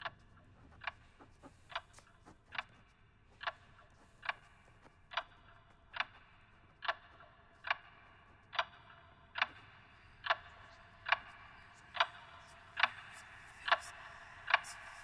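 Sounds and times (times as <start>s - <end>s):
pendulum clock ticking: 3.4s - 15.0s.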